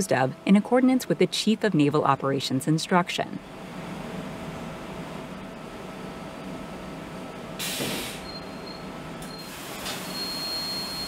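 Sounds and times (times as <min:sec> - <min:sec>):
loud hiss: 0:07.6 - 0:08.2.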